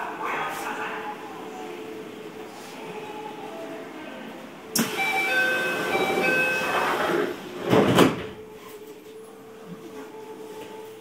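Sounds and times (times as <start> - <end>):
train door chime: 4.8 - 7.3
doors shutting with a thud: 7.0 - 8.4.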